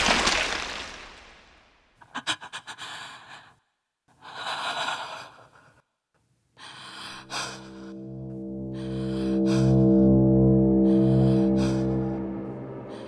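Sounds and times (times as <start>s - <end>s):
person gasping heavy breathing: 6.6s - 8.0s
low bowed-string music: 6.9s - 13.0s.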